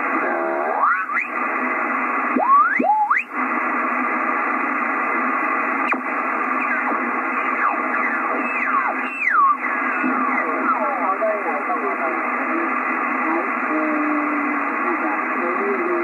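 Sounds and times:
radio receiver hiss: 0.0 - 16.0.

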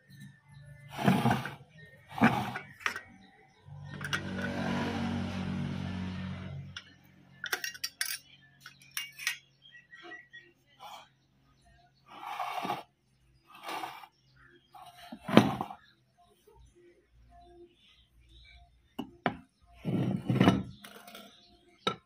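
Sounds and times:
metal knocks and clinks: 6.8 - 9.5.

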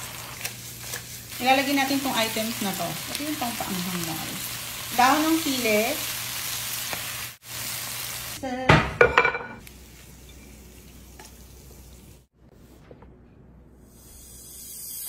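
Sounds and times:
stir-fry sizzling in a pan: 0.0 - 12.3.

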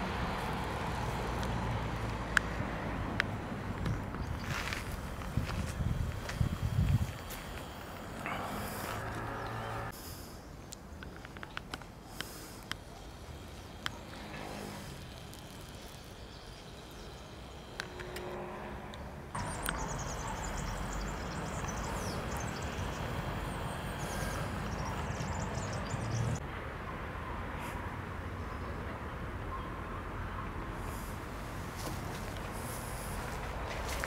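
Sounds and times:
steady low rumble: 0.0 - 10.4
small birds chirping: 3.7 - 18.0, 19.4 - 26.4.

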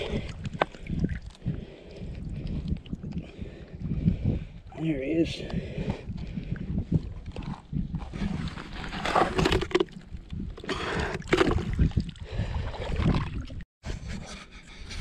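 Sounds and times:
shallow water sloshing and splashing: 0.0 - 3.6, 7.0 - 13.6.

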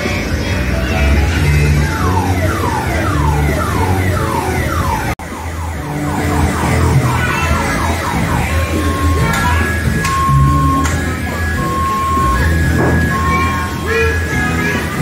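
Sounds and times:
background music with bass line: 0.0 - 15.0
siren-like falling sweep: 1.9 - 13.9.

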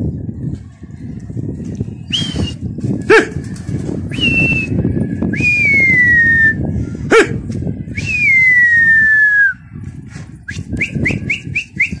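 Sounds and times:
person whistling falling pitch: 5.4 - 6.6.

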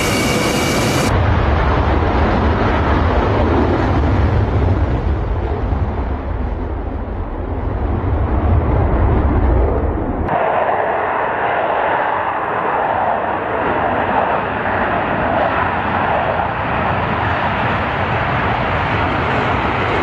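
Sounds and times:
fighter jet engines roaring: 0.0 - 20.0.

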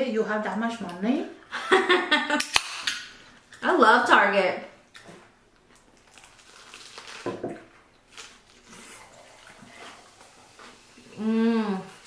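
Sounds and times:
soda pouring into mug: 8.9 - 11.2
person humming mmm: 11.0 - 12.0.

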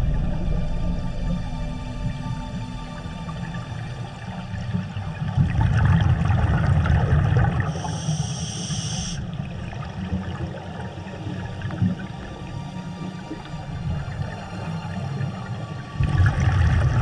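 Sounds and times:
underwater river current rumbling: 0.0 - 17.0
brief high hiss: 7.7 - 9.2.

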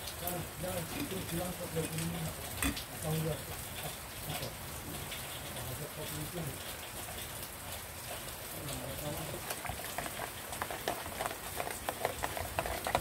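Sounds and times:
rain hiss: 0.0 - 13.0
kettle scrubbed by hand: 9.4 - 13.0.

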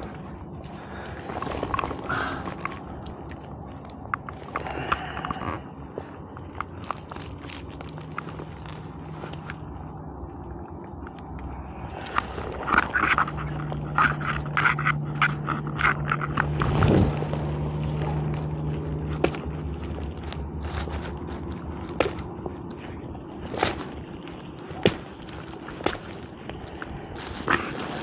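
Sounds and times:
plastic bag crinkling: 0.0 - 9.7, 11.9 - 22.3
low steady hum: 0.0 - 28.0.

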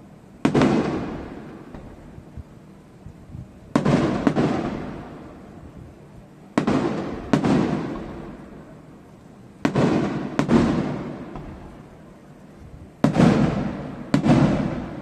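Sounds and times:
firework bangs: 0.0 - 2.4, 3.7 - 5.7, 6.5 - 8.9, 9.6 - 12.2, 12.9 - 15.0.

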